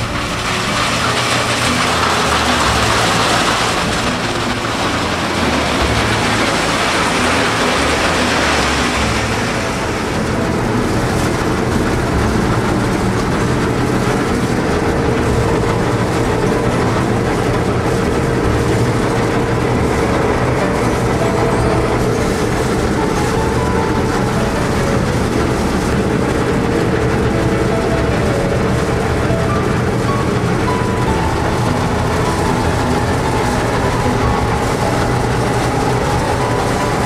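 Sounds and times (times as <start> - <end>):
high hiss: 0.0 - 27.0
combine harvester droning: 0.0 - 37.0.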